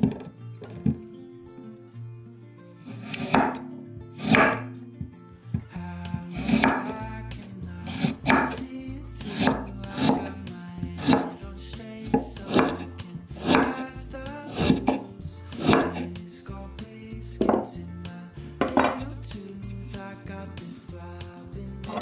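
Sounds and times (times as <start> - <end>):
soft background music: 0.0 - 22.0
knife slicing root on wooden board: 2.9 - 4.8, 6.3 - 7.0, 7.9 - 8.6, 9.2 - 10.3, 11.0 - 11.4, 12.1 - 13.8, 14.5 - 15.0, 15.6 - 16.1.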